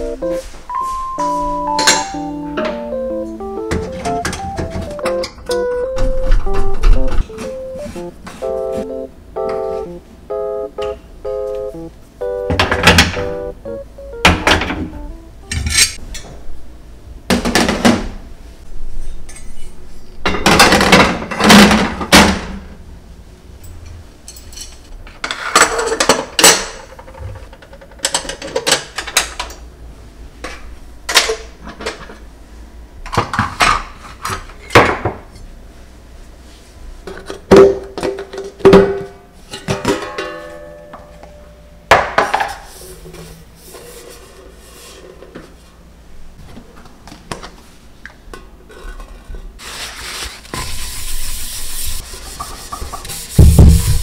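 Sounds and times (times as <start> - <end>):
background music: 0.0 - 16.0
metal kitchenware clinking: 15.5 - 16.3.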